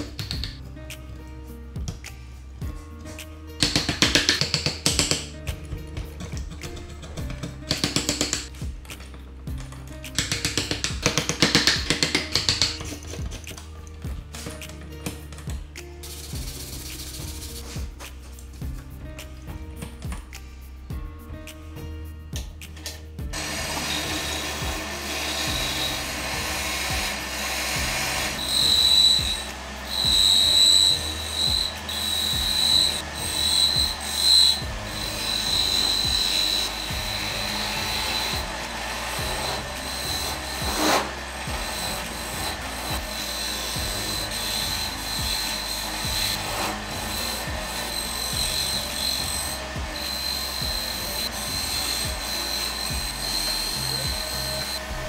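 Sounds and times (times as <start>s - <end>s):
chisel scraping wood: 6.0s - 8.5s, 10.2s - 15.4s, 23.4s - 55.0s
lathe running hum: 23.4s - 55.0s.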